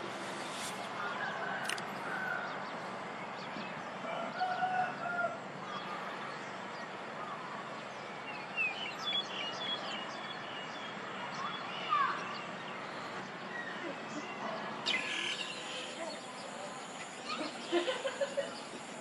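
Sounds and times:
steady background noise: 0:00.0 - 0:19.0
sparrow chirping: 0:08.2 - 0:18.8
drawn-out bird call: 0:11.6 - 0:18.8.

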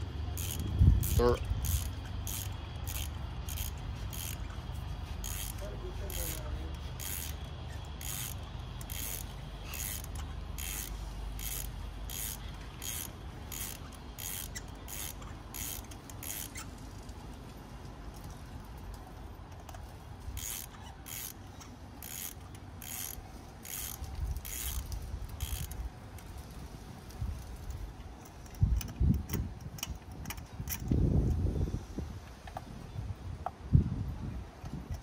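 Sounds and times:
ratchet wrench clicking: 0:00.0 - 0:16.7, 0:19.5 - 0:26.3, 0:27.6 - 0:31.4.

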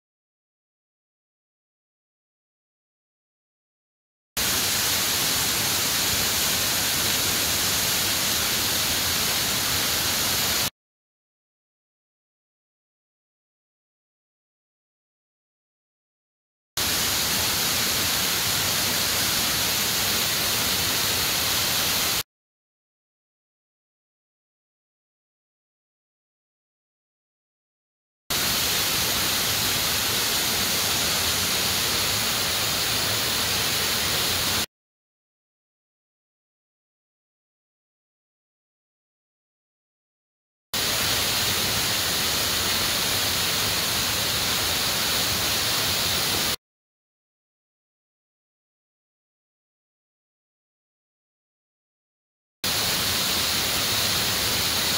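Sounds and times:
waterfall rushing: 0:04.4 - 0:10.7, 0:28.3 - 0:34.7, 0:40.8 - 0:46.6
waterfall roaring: 0:28.4 - 0:34.6.

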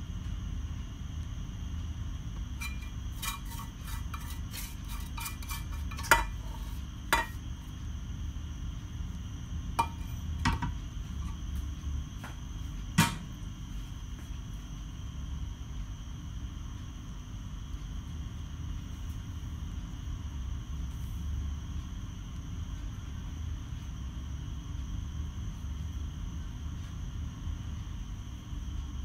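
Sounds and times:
spoon scraping a frying pan: 0:02.6 - 0:07.4, 0:09.8 - 0:10.7.

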